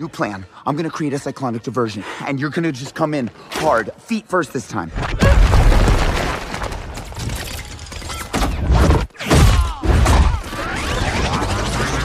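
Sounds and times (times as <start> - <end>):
booms crashes and thuds: 5.0 - 12.0.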